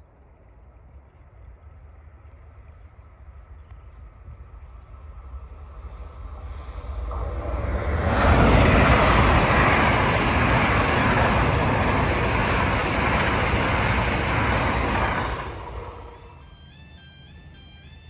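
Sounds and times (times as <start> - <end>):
train passing at speed: 0.0 - 18.0.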